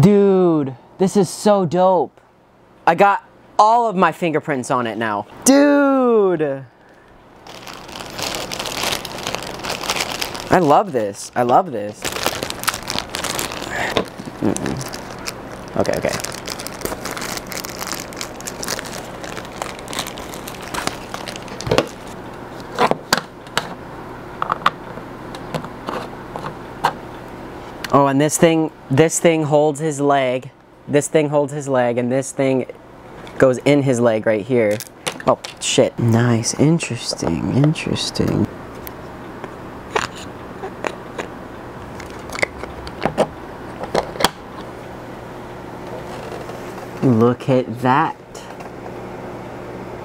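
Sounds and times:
plastic bag crinkling: 7.4 - 22.8, 41.9 - 42.7, 45.9 - 46.8.

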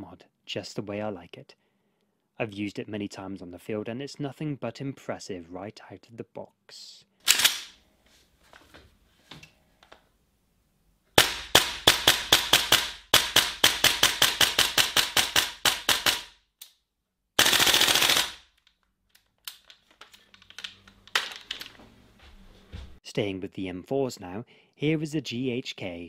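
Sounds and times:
airsoft rifle shots: 11.2 - 16.3, 17.4 - 18.4.

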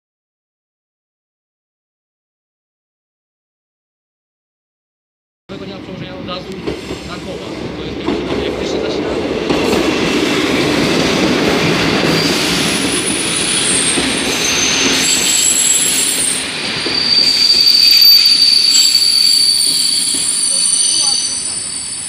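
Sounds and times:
train wheels rumbling on rails: 5.5 - 22.0
high wheel squeal: 12.0 - 22.0.

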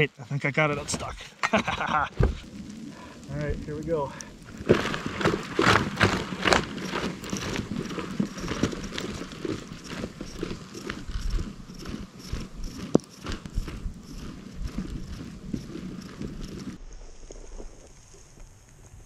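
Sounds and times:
boots crunching on packed snow: 4.6 - 16.8.

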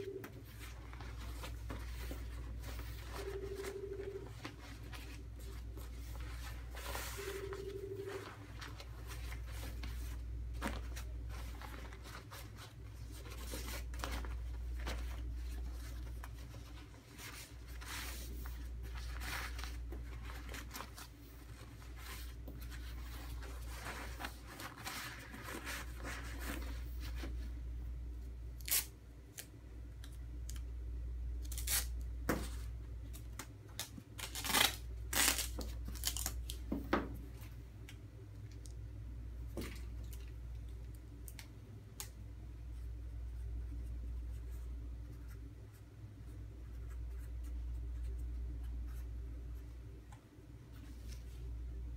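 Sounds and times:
gown rustling and crinkling: 0.2 - 27.6
tape ripping off a roll: 31.4 - 31.9, 33.8 - 36.4.

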